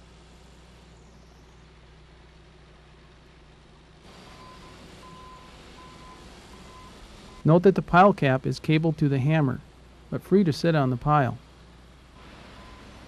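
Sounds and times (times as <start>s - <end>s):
construction machinery engine hum: 0.0s - 13.0s
reversing alarm beeping: 4.3s - 7.5s, 12.5s - 13.0s.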